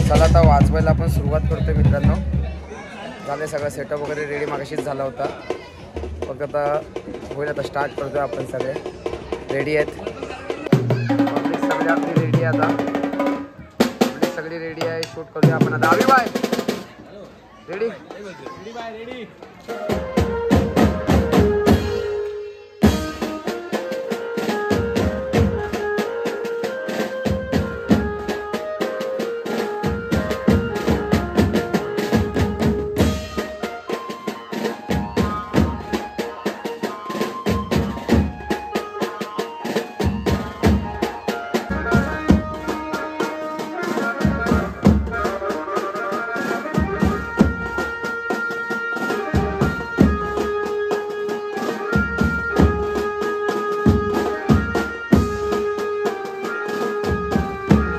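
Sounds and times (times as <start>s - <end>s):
large drums beating: 0.0s - 2.7s, 3.6s - 17.0s, 19.7s - 22.2s, 22.8s - 45.7s, 49.2s - 50.9s, 51.8s - 57.9s
electronic keyboard melody: 19.7s - 57.9s.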